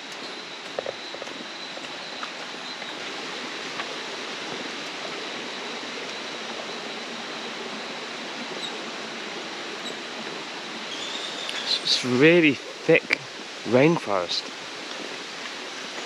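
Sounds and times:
high-pitched whine: 0.0 - 14.5
stream rushing: 0.0 - 16.0.

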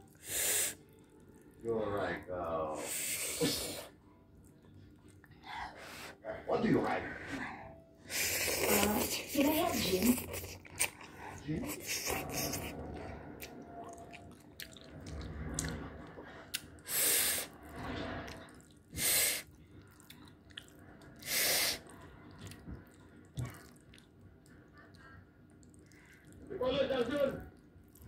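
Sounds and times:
person slurping noodles: 10.1 - 13.5.

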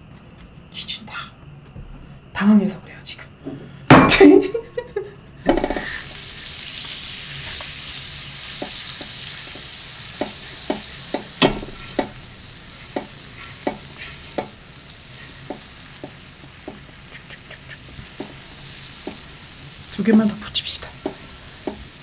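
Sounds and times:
butter sizzling on griddle: 5.5 - 22.0
sharp pops and spits: 15.4 - 18.4.

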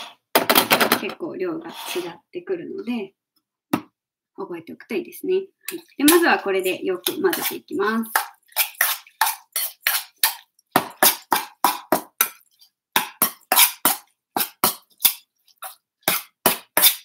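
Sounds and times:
spoon scraping metal bowl: 5.7 - 17.0.

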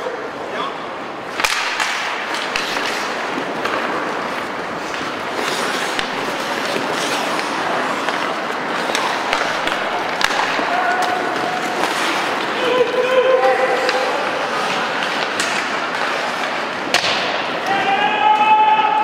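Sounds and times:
rink background noise: 0.0 - 19.0
sticks and puck clacking: 0.0 - 19.0
skate blades scraping ice: 1.2 - 19.0.

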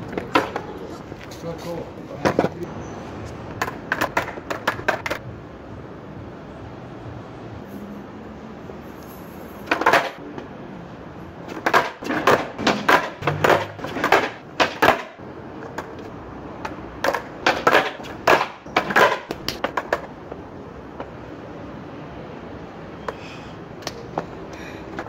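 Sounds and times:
skateboard clacks on stone: 0.0 - 0.8, 2.2 - 2.6, 3.5 - 5.2, 9.6 - 10.2, 11.5 - 20.4.

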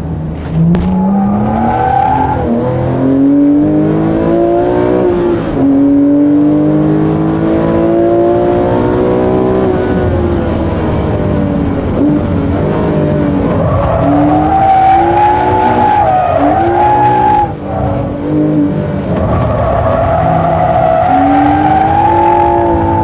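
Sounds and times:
car engine revving: 0.4 - 23.0.

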